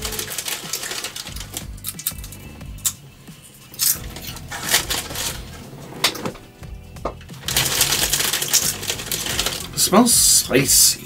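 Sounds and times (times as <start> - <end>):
plastic bag crinkling: 0.0 - 2.4, 3.8 - 6.5, 7.4 - 9.9
chips crunching: 0.0 - 3.0, 3.7 - 6.5, 7.4 - 9.9.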